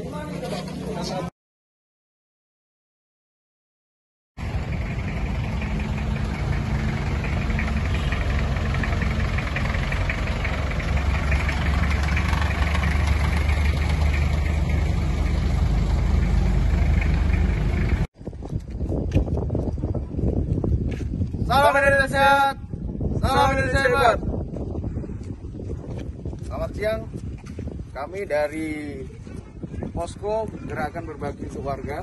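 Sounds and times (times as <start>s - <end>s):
pickup truck engine rumbling: 4.4s - 18.1s.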